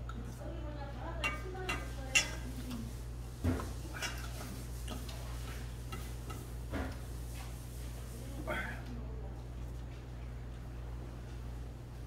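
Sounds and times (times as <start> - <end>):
cutlery clinking on metal bowl: 1.2 - 2.9, 3.9 - 5.2, 5.9 - 6.5.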